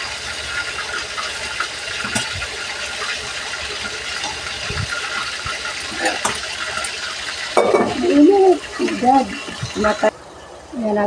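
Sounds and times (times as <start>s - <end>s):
gas stove hissing: 0.0s - 11.0s.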